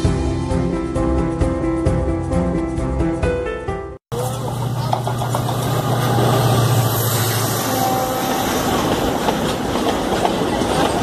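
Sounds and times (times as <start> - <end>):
freight wagons rumbling past: 4.1 - 11.0
locomotive engine drone: 4.1 - 11.0.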